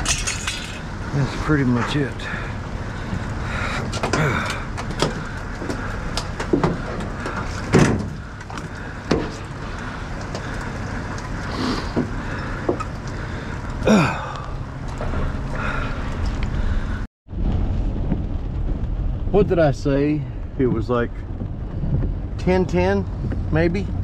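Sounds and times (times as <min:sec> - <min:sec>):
low background rumble: 0:00.0 - 0:24.0
metal and wood knocks: 0:03.8 - 0:09.6.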